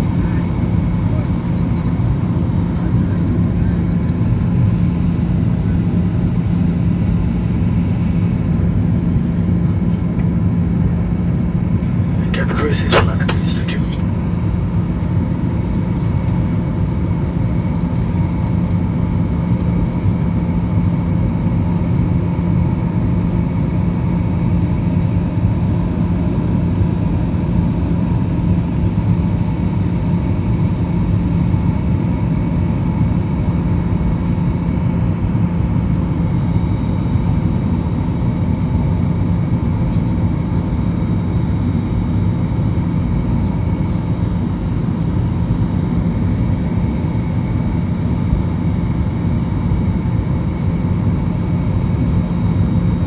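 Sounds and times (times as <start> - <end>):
airliner engines droning: 0.0 - 53.0
low even hum: 6.6 - 17.4.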